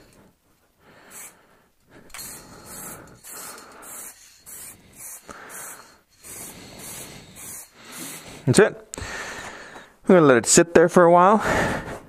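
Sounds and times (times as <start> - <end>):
spray paint can hissing: 1.0 - 1.4, 2.1 - 8.5.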